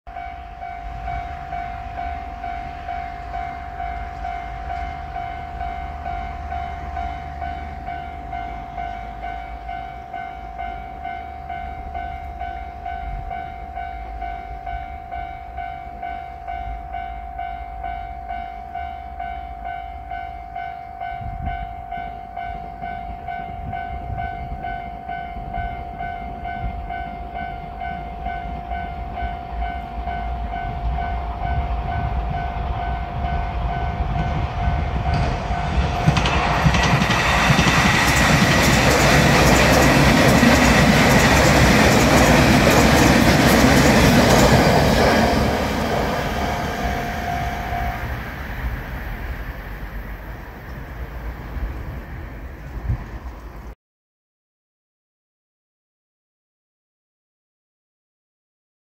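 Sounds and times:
railroad crossing bell ringing: 0.1 - 51.1
diesel train rumble: 0.1 - 53.8.

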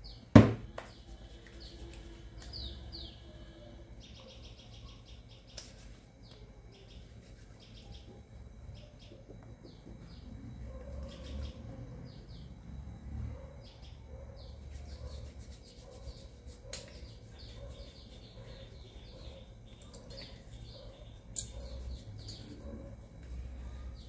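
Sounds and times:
sharp knock: 0.4 - 0.8
small birds chirping: 0.9 - 24.0.

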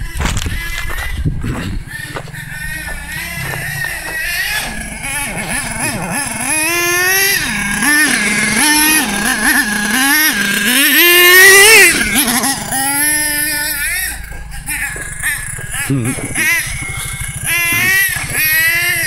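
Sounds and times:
small nitro engine revving: 0.0 - 19.0.

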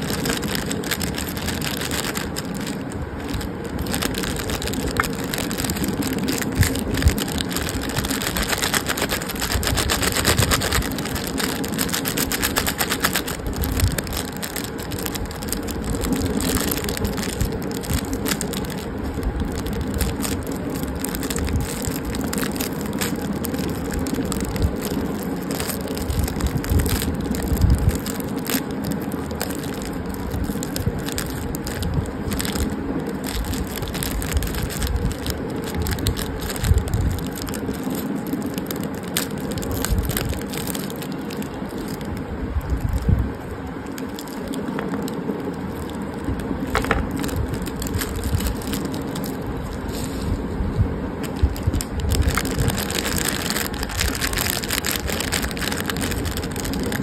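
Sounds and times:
wrapper tearing open: 0.0 - 43.2, 43.8 - 50.3, 51.2 - 57.0
snack wrappers crinkling: 0.0 - 50.4, 51.2 - 57.0.

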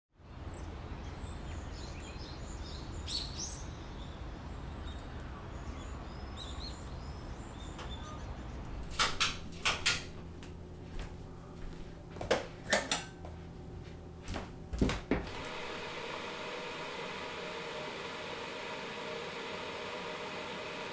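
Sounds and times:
faint bird chirps: 1.1 - 8.8
electric kettle hissing: 15.2 - 20.9.

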